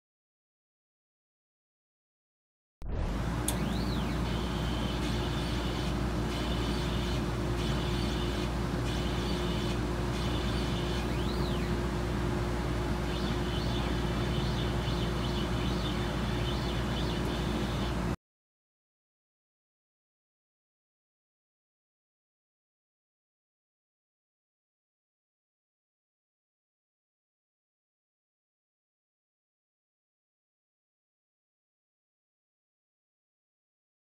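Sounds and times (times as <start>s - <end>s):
high motor whine: 2.8s - 18.2s
laser cutter hum and rush: 2.9s - 18.2s.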